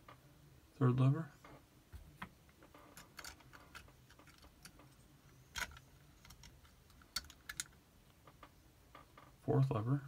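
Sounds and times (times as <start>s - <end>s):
small metal lock parts clicking: 2.8s - 7.8s.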